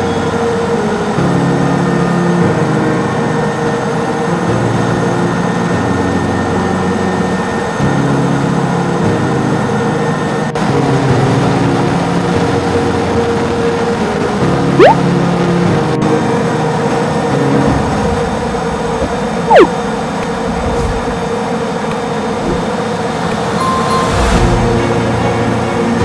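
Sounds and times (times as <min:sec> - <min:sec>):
helicopter engine and rotor: 0:00.0 - 0:14.5.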